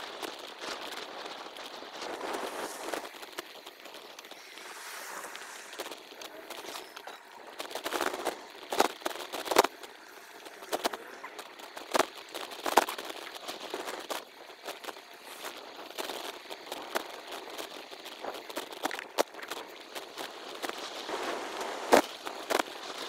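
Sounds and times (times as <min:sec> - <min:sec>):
bike clicks and crackles: 0:00.0 - 0:23.0
hiss: 0:00.6 - 0:18.9.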